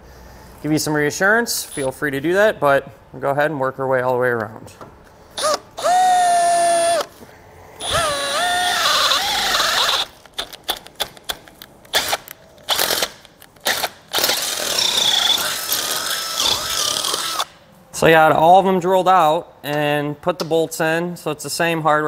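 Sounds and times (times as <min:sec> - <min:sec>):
cordless drill drilling metal: 0:05.4 - 0:07.1, 0:07.8 - 0:10.2, 0:11.9 - 0:17.5.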